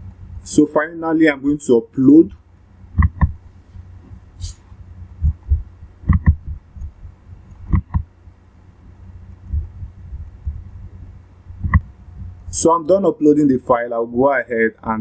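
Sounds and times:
low rumble: 2.7 - 12.6
soft thumps on microphone: 3.0 - 3.4, 5.2 - 7.0, 7.7 - 8.1, 11.6 - 12.3
computer mouse double-clicks: 6.1 - 6.9, 7.6 - 8.0, 11.6 - 11.9.

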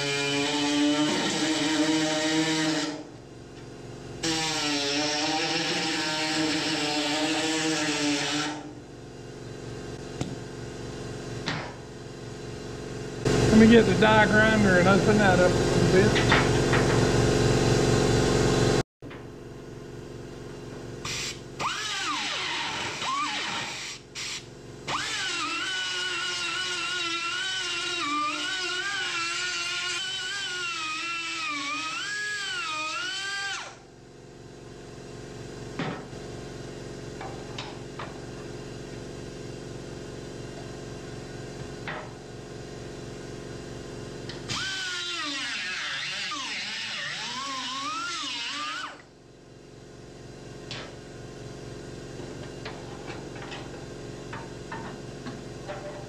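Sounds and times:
die grinder whining: 0.0 - 3.1, 21.1 - 24.1, 24.8 - 33.9, 44.3 - 49.1
loud droning hum: 8.3 - 56.0.

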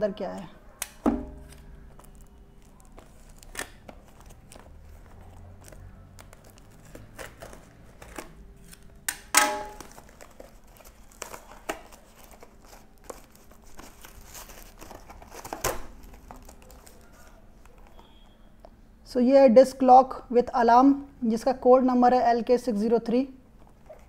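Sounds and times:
paper rustling and crinkling: 1.3 - 9.0, 9.7 - 18.0, 23.6 - 24.0
paper ripping: 1.4 - 8.9.

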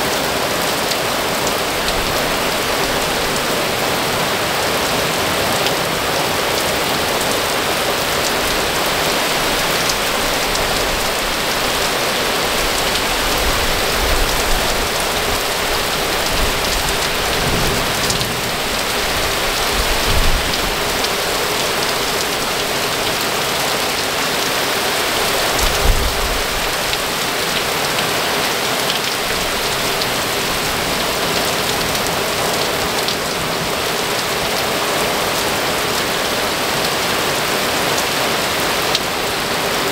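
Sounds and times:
heavy rain pouring: 0.0 - 39.9
low thunder rumbles: 13.2 - 21.1.

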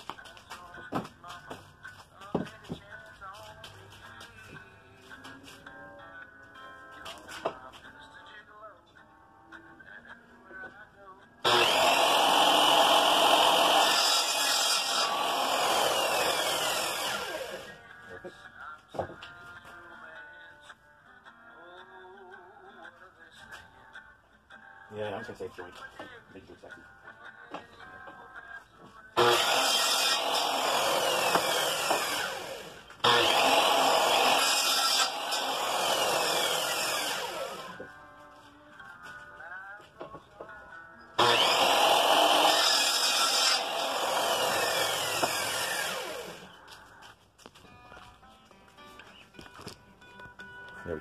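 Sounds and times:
power saw cutting bamboo: 11.4 - 17.8, 29.2 - 37.8, 41.2 - 46.5.

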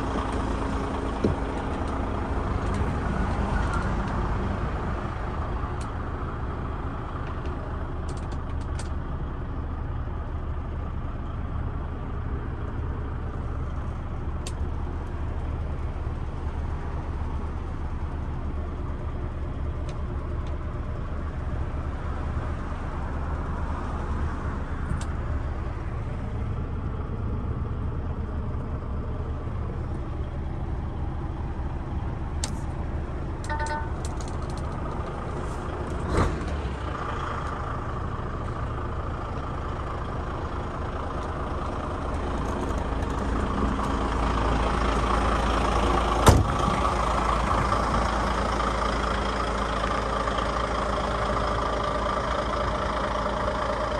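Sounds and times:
truck diesel engine idling: 0.0 - 53.9
short beeps: 33.5 - 34.0.

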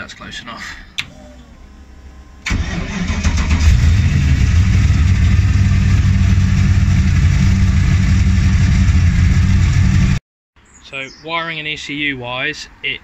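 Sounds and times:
car engine idling loudly: 3.6 - 10.2.

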